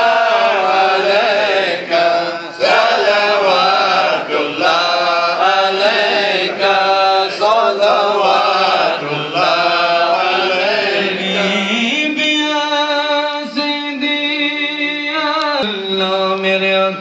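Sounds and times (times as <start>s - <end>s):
men chanting in unison: 0.0s - 12.2s.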